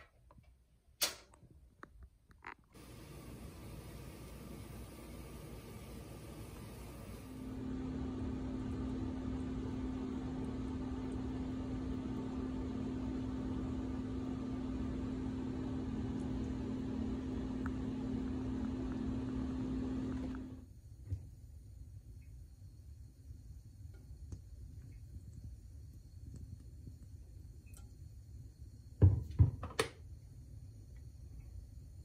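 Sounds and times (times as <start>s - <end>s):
machine hum: 2.8s - 20.7s.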